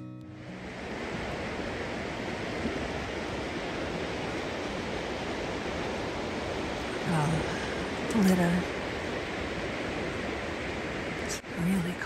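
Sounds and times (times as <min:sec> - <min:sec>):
running water rushing: 0:00.0 - 0:12.0.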